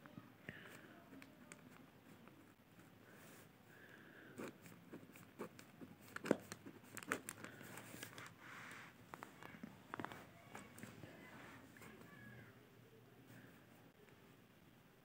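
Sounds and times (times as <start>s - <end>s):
paper rustling: 4.4s - 12.0s.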